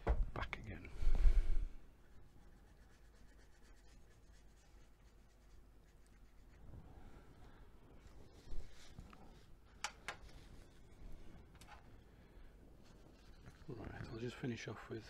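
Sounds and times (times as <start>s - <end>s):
paintbrush stroking on paper: 1.9s - 7.2s, 8.0s - 9.6s, 12.8s - 14.4s.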